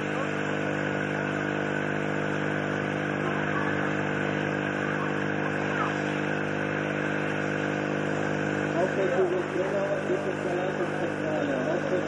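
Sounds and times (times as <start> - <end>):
engine water pump running: 0.0 - 12.0
hose water jet: 0.0 - 12.0.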